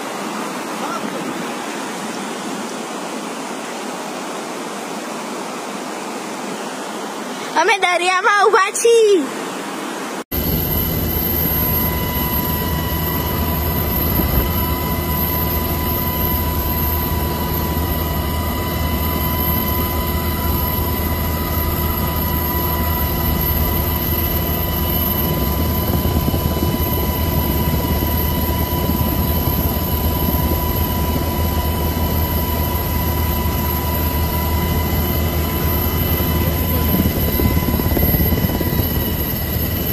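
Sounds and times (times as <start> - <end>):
helicopter engine drone: 0.0 - 7.6, 9.3 - 39.9
helicopter whine: 8.8 - 39.9
rushing wind: 10.3 - 39.9.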